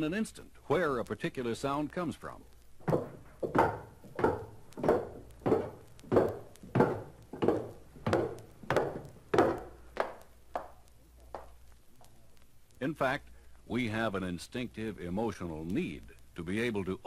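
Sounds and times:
sharp knocks on wood: 2.9s - 10.7s.

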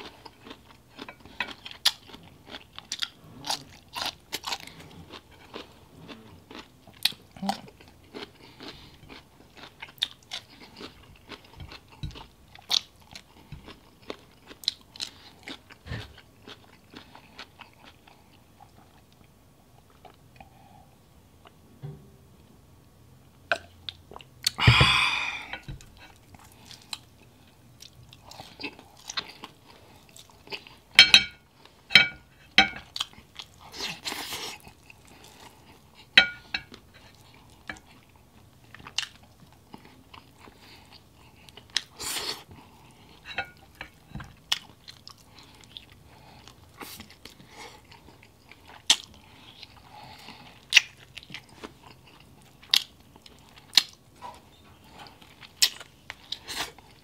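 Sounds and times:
chewing and lip smacking: 0.0s - 20.5s, 32.8s - 57.0s.

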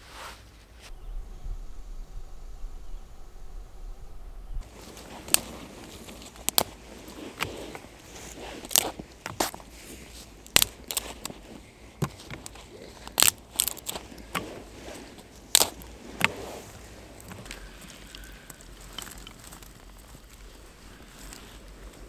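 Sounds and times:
dry twigs snapping: 4.6s - 22.0s.

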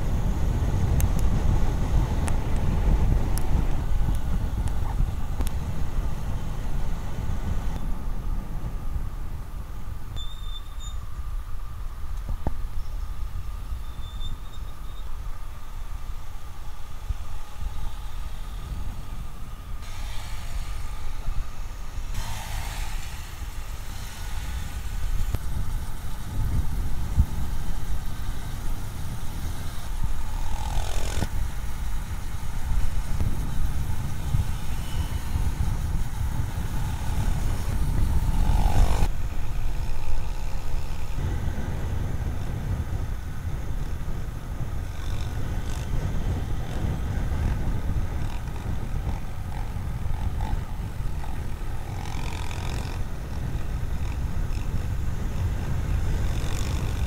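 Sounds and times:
road noise: 0.0s - 57.0s
motorcycle engines rumbling: 24.9s - 57.0s.

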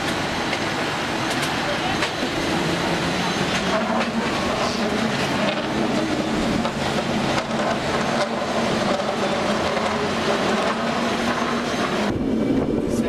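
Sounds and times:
passing traffic: 0.0s - 13.0s.

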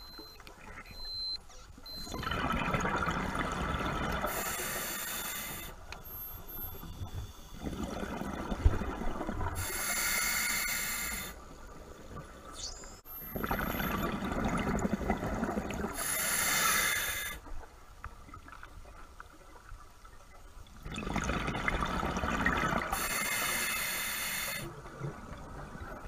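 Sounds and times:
underwater bubbling exhalation: 2.1s - 4.4s, 7.6s - 9.8s, 13.3s - 16.2s, 20.8s - 23.1s
regulator hissing inhalation: 4.3s - 5.8s, 9.6s - 11.4s, 16.0s - 17.4s, 23.0s - 24.7s.

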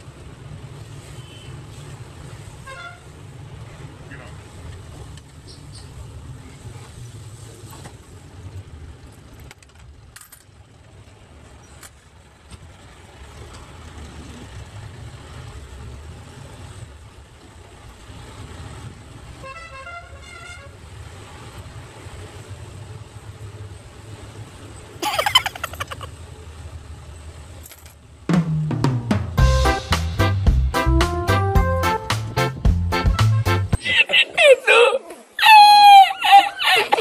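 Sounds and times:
diesel engine rumble: 0.0s - 34.8s
vehicle horn: 1.2s - 1.6s, 2.6s - 3.1s, 19.4s - 20.7s.

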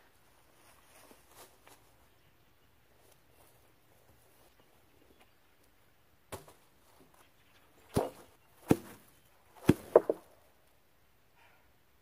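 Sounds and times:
sharp knocks: 9.7s - 10.3s.

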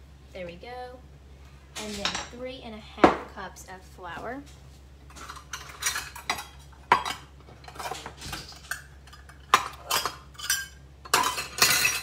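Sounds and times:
low steady hum: 0.0s - 12.0s
utensils and dishes clinking: 5.1s - 12.0s.

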